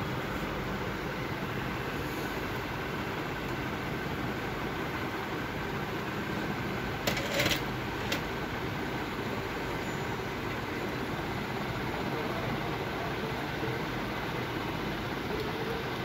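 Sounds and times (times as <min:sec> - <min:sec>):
projector cooling fans whooshing: 0:00.0 - 0:16.0.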